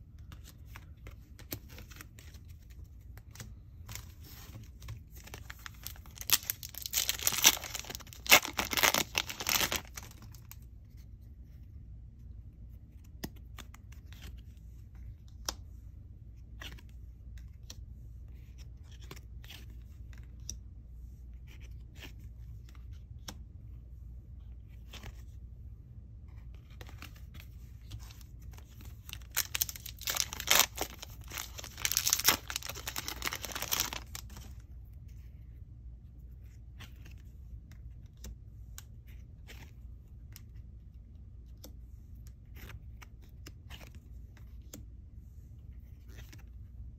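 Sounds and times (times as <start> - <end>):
cards being handled: 0.0 - 11.4, 26.3 - 35.2
wrapper ripping open: 5.4 - 10.6, 29.0 - 34.4.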